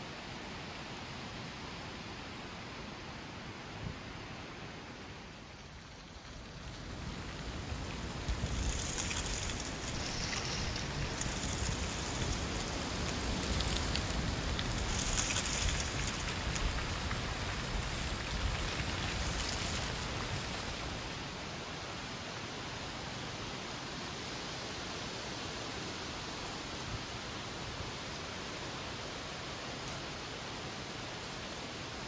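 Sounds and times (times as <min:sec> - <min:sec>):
dry leaves rustling: 0:05.3 - 0:21.6
wind rumble: 0:05.6 - 0:21.4.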